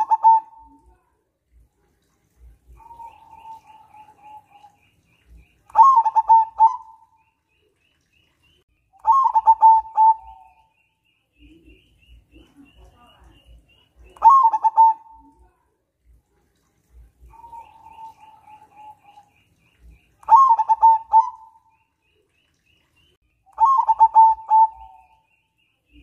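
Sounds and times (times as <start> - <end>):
dove cooing: 0.0 - 0.8, 2.7 - 4.8, 5.7 - 7.1, 9.0 - 10.7, 14.1 - 15.4, 17.2 - 19.3, 20.2 - 21.7, 23.6 - 25.2
small bird chirping: 2.7 - 15.6.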